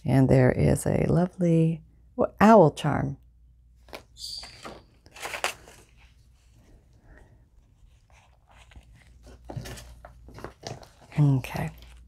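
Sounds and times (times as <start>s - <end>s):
paper pages rustling: 3.8s - 12.0s.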